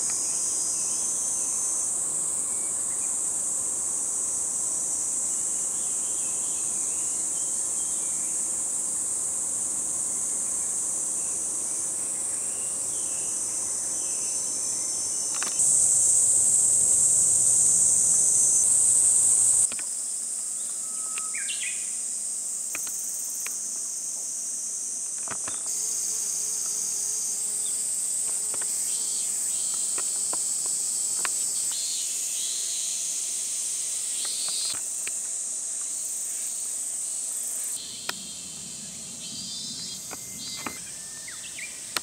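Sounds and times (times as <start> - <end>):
shrill insect chorus: 0.0 - 42.0.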